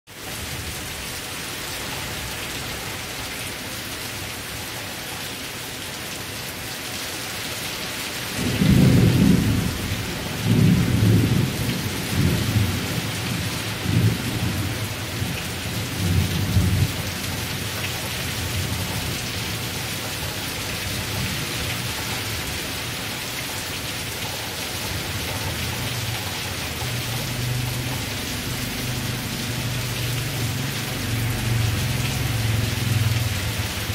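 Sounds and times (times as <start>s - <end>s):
rain falling on leaves: 0.1s - 33.9s
thunder rolling: 8.4s - 23.1s.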